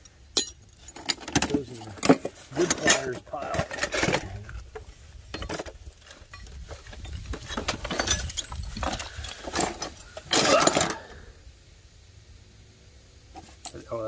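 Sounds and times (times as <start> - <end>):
metal clatter: 0.0 - 11.0
metal parts clinking in crate: 0.3 - 4.6, 5.3 - 11.1.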